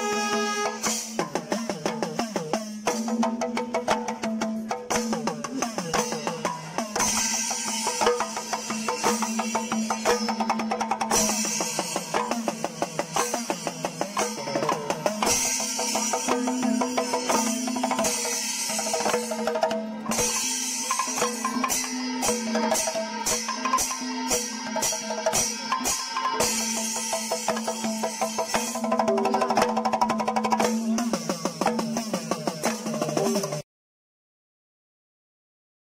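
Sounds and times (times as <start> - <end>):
cymbals clashing: 0.0 - 3.3, 4.9 - 29.1
hand drums beaten fast: 0.2 - 33.6.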